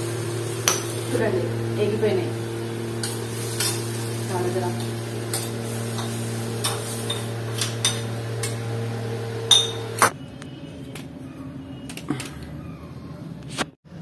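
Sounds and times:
metal spoon clinking on pan: 5.3 - 8.6, 9.5 - 9.9.

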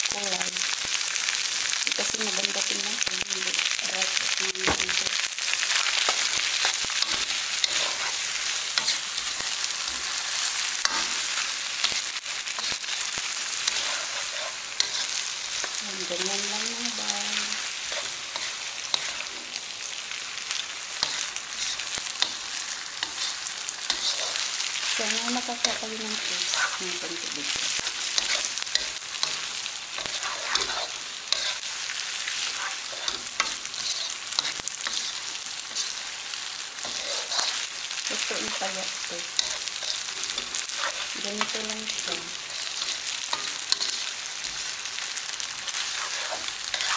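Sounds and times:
food sizzling in a wok: 0.0 - 46.9
spatula scraping and tapping pan: 6.0 - 9.0, 13.6 - 15.8, 17.9 - 19.5, 21.0 - 24.5, 27.8 - 29.4, 30.0 - 31.6, 32.4 - 36.0, 36.8 - 37.6, 39.4 - 41.6, 42.4 - 44.6, 45.8 - 46.9
plastic spatula scraping wok: 13.6 - 15.7, 40.7 - 41.6, 45.9 - 46.9.

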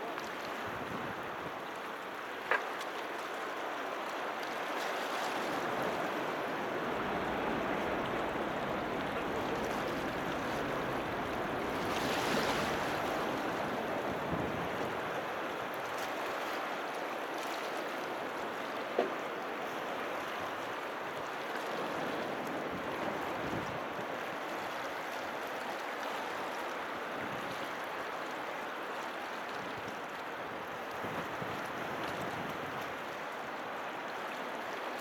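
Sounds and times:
harbour water washing: 0.0 - 35.0
wind noise: 30.9 - 32.8.

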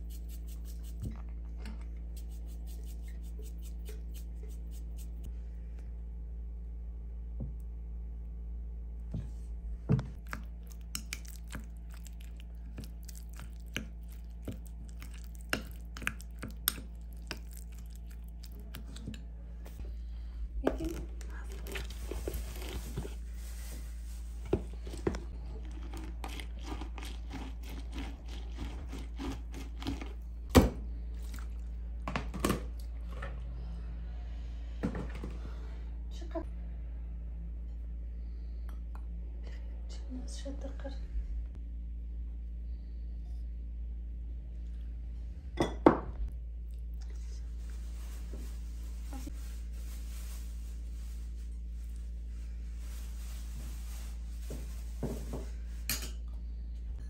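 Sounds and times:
low hum: 0.0 - 32.1, 32.7 - 54.4
hand juicer rasping: 24.8 - 30.2.

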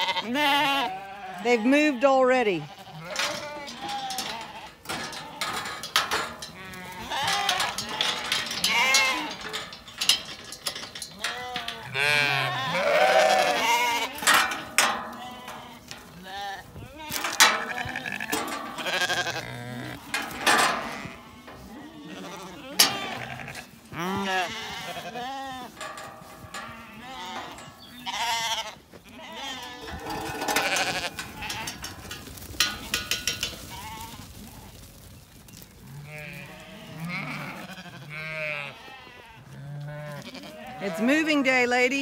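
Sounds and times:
sheep bleating: 0.0 - 5.6, 6.5 - 9.6, 11.2 - 31.9, 35.9 - 41.6
metal gate clanking: 3.0 - 34.1.

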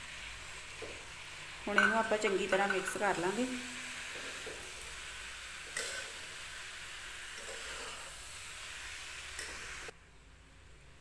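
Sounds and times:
food sizzling in a pan: 0.0 - 10.0
spoon knocking pan: 1.7 - 3.4, 4.1 - 4.8
steel spoon stirring: 1.7 - 3.5, 7.3 - 8.2.

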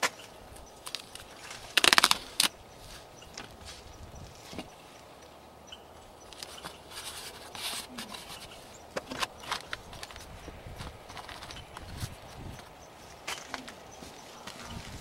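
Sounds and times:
hands rustling in potting soil: 0.0 - 5.3, 6.2 - 15.0
plastic pots clicking: 0.8 - 2.5, 6.3 - 14.8.

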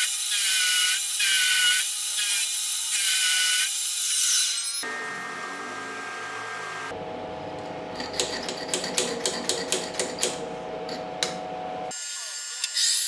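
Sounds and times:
machine hum: 4.8 - 11.9.

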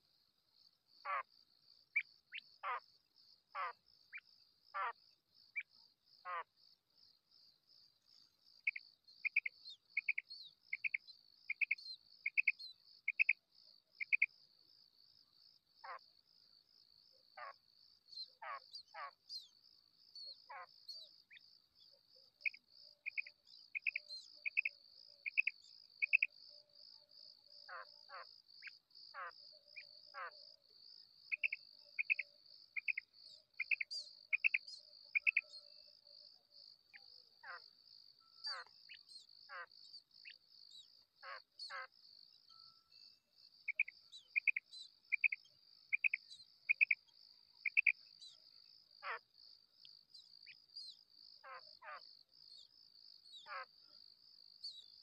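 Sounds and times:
quail calling: 35.2 - 35.4, 38.4 - 39.7, 47.6 - 47.9.

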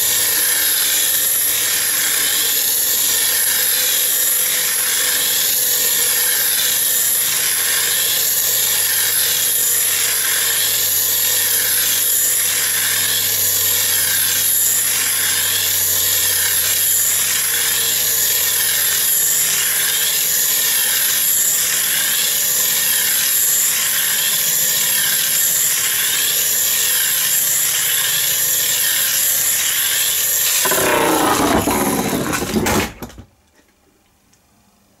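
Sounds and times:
gyroscope whirring: 0.0 - 33.2.

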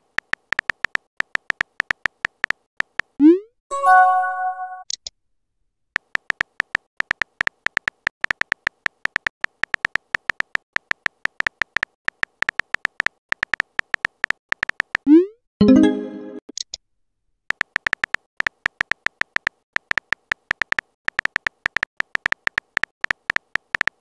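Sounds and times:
electronic keyboard typing blips: 17.5 - 24.0.

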